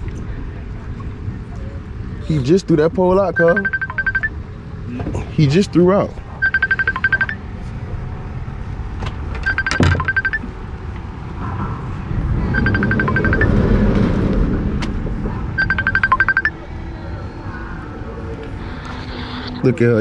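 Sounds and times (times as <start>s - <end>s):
phone ringtone: 3.3s - 4.3s, 6.4s - 7.4s, 9.5s - 10.5s, 12.5s - 13.6s, 15.6s - 16.6s.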